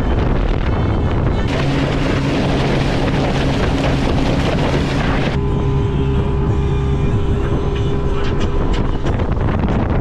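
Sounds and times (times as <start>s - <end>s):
wind buffeting microphone: 0.0s - 5.5s, 6.1s - 10.0s
motorboat engine drone: 0.0s - 10.0s
water rushing past hull: 1.3s - 5.6s.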